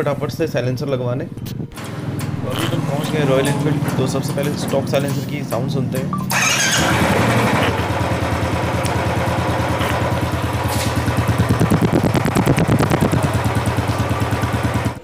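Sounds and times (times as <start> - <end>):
motorcycle engine idling: 1.8 - 15.0.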